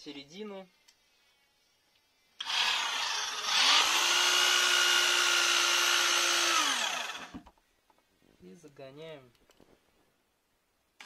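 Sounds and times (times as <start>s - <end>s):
electric drill driving screw: 2.4s - 7.5s.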